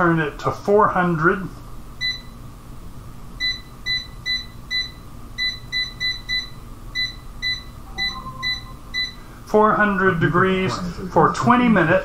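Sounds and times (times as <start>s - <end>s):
short high beeps: 7.9s - 9.2s.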